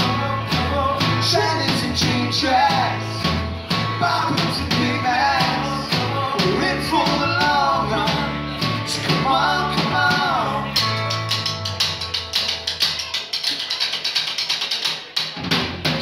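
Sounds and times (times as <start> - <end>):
man singing: 0.0 - 11.4
rock band playing: 0.0 - 13.8, 15.0 - 16.0.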